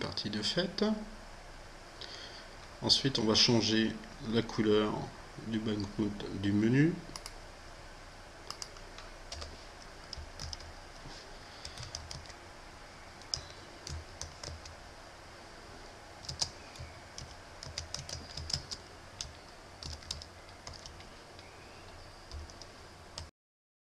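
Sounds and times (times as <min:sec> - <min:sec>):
typing on computer keyboard: 0:07.1 - 0:07.4, 0:08.5 - 0:10.7, 0:11.6 - 0:12.4, 0:13.2 - 0:14.8, 0:16.2 - 0:21.5, 0:22.3 - 0:23.3.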